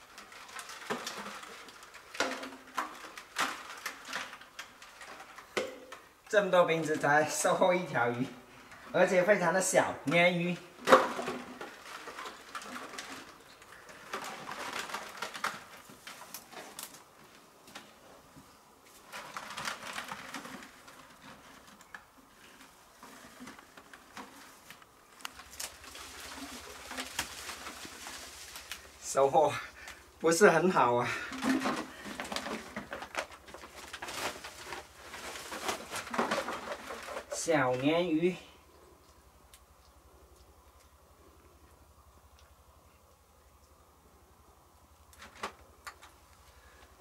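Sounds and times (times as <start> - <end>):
plastic bottle traps bumping: 0.0 - 6.0, 10.7 - 16.9, 31.1 - 37.4
plastic bottles crinkling and knocking: 0.0 - 39.8, 44.8 - 47.0.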